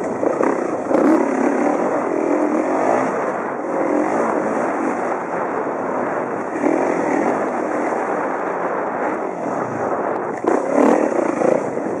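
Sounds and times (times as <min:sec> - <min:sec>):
motorcycle engine under throttle: 0:00.0 - 0:12.0.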